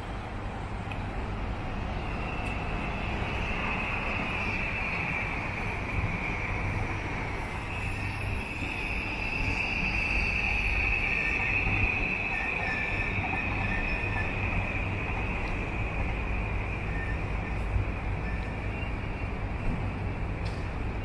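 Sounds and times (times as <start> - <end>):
train wheels rumbling on rails: 0.0 - 21.0
high-pitched whine: 1.6 - 20.3.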